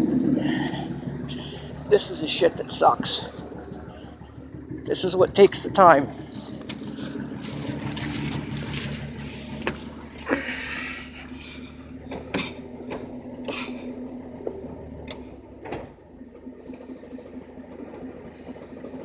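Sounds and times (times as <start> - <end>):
pickup engine idling: 0.0 - 19.0
knocks and rustles climbing in: 6.4 - 10.3, 11.4 - 13.6.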